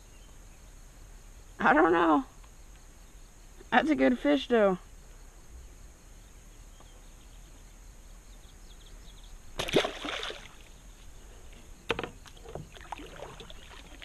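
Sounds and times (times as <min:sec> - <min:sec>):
splash in pond water: 0:09.6 - 0:10.8, 0:11.9 - 0:14.0.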